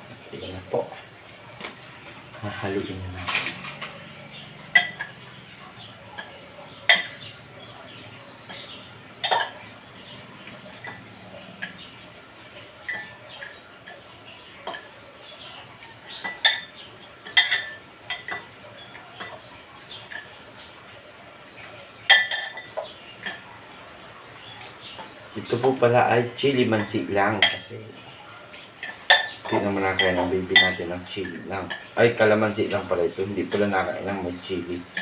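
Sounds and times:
metal fork clinking against a bowl: 3.2s - 15.0s, 15.8s - 20.4s, 21.6s - 23.5s, 24.4s - 25.9s, 26.6s - 27.8s, 28.5s - 34.2s.

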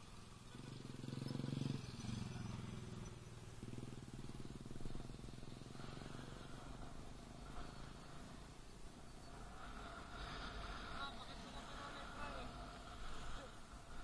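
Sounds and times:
motorcycle engine running: 0.0s - 8.5s.

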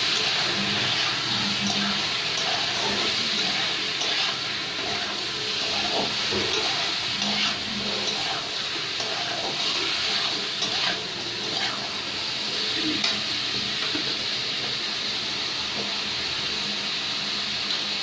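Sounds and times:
spoon scraping pan: 0.0s - 12.0s
chicken sizzling in oil: 0.0s - 18.0s.

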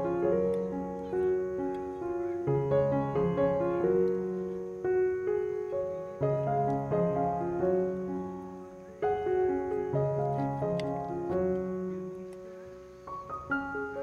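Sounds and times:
gentle piano melody: 0.0s - 14.0s.

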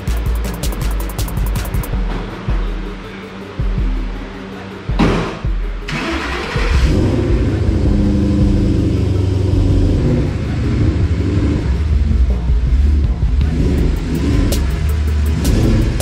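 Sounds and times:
car engine exhaust note: 6.8s - 16.0s.

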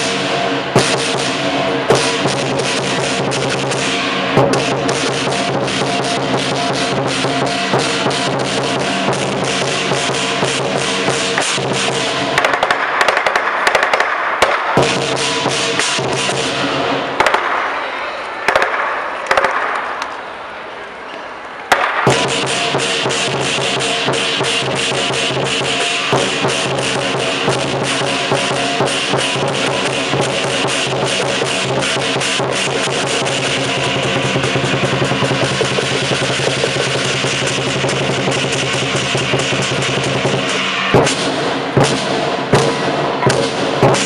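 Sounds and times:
ringing gong: 0.0s - 12.4s
clashing cymbals: 0.0s - 17.3s, 22.0s - 44.0s
big drum rapid strokes: 0.0s - 17.7s, 21.7s - 44.0s.

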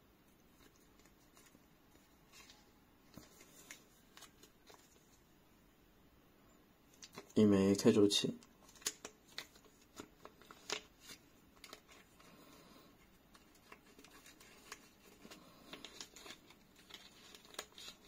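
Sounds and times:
plastic bag crinkling: 8.4s - 12.7s, 13.3s - 18.0s.

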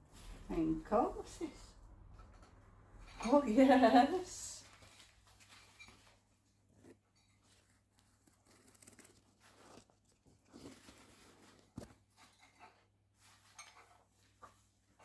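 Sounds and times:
paper crinkling and rustling: 4.6s - 12.4s.

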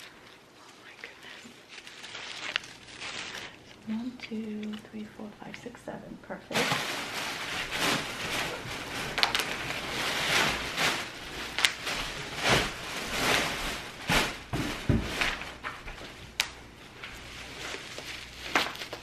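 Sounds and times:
plastic packaging crinkling: 0.0s - 19.0s.

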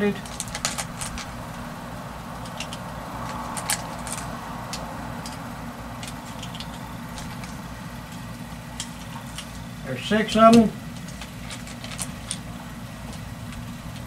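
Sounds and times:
low rumble: 0.2s - 9.5s.

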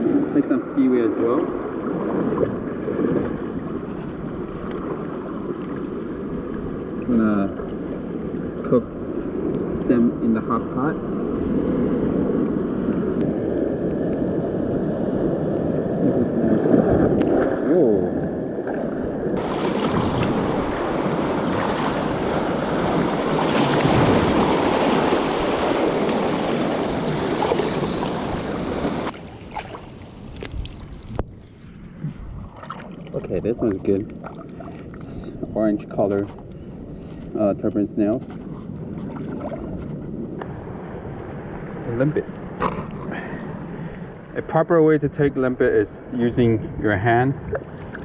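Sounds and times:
water surging and sloshing: 0.0s - 48.0s
wind noise on microphone: 1.8s - 44.4s, 46.0s - 48.0s
small splashes: 19.4s - 31.3s, 32.5s - 35.2s.

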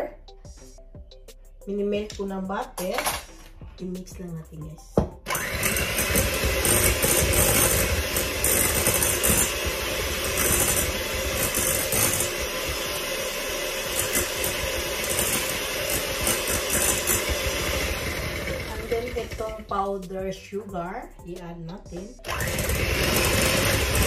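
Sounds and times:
electric hand mixer whisking: 5.3s - 19.7s, 22.2s - 24.0s.

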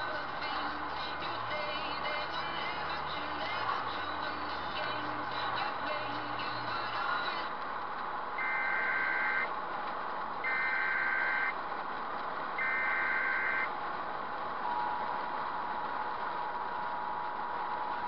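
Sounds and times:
road noise inside vehicle: 0.0s - 18.0s
long electronic beeps: 8.4s - 9.5s, 10.5s - 11.6s, 12.6s - 13.7s.

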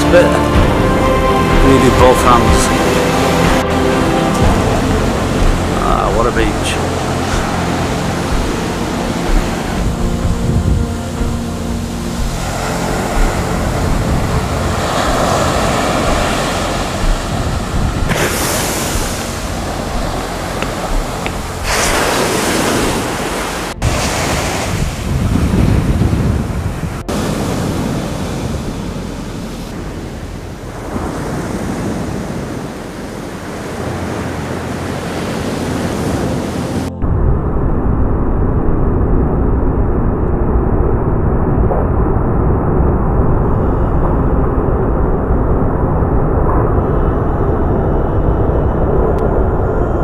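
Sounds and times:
wind rumbling on microphone: 0.5s - 50.0s
surf breaking on beach: 4.4s - 36.9s.

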